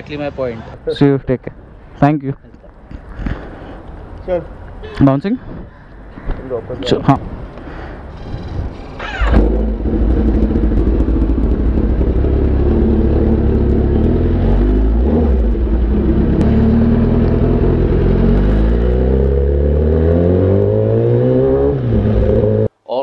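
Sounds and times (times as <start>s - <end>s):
motorcycle engine running: 8.4s - 18.6s.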